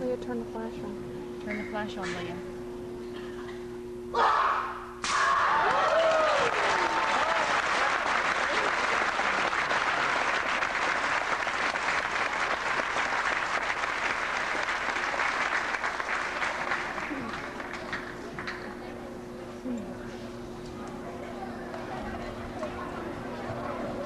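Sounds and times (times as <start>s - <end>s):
crowd cheering: 4.2s - 18.5s
crowd applauding: 5.5s - 18.7s.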